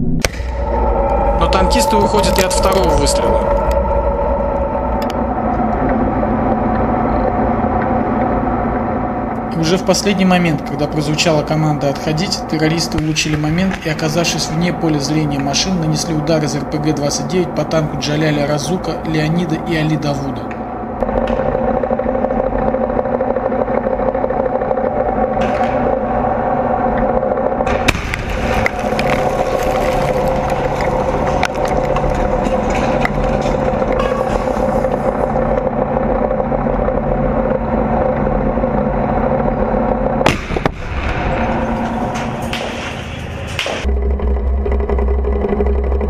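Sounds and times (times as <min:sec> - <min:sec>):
tank engine droning: 0:00.0 - 0:46.0
hissing crackling noise: 0:27.6 - 0:36.8
sharp explosion blast: 0:27.7 - 0:28.6, 0:40.2 - 0:43.9.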